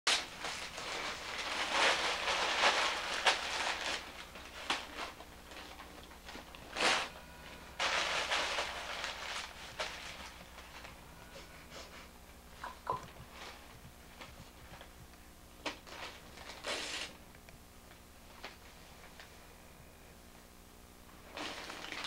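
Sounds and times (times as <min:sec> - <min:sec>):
paper crinkling and rustling: 0:00.1 - 0:11.0, 0:13.0 - 0:15.0, 0:15.6 - 0:17.2, 0:21.2 - 0:22.0
faint low hum: 0:00.1 - 0:22.0.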